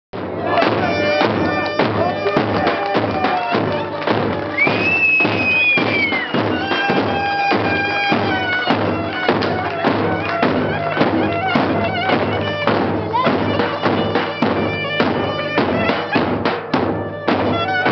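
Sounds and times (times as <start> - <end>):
steady beat: 0.2 - 17.9
clarinet playing lively melody: 0.3 - 17.9.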